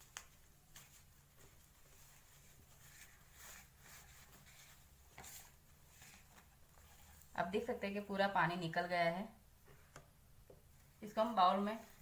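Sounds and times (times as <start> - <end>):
damp cloth rustling: 0.0 - 7.4.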